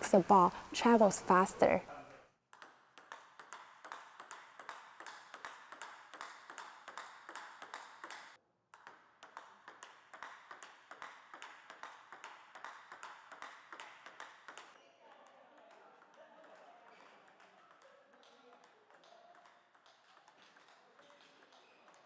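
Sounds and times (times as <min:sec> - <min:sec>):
table tennis ball clicking: 0:02.6 - 0:14.8.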